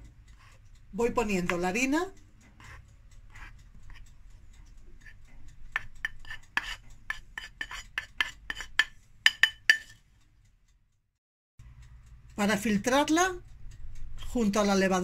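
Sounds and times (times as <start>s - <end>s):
bowl and spoon tapping a sieve: 5.7s - 10.0s.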